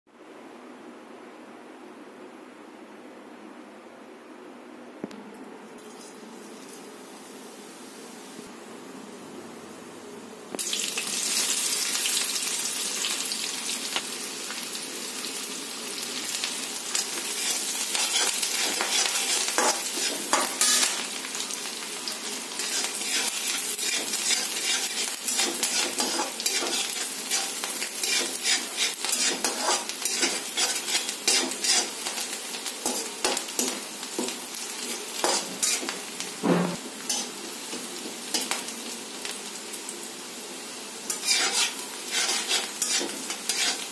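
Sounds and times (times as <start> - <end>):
onions sizzling in hot oil: 5.8 - 8.6, 10.5 - 43.9
metal spoon scraping a pan: 17.4 - 21.1, 22.6 - 35.9, 37.1 - 37.3, 41.1 - 43.9.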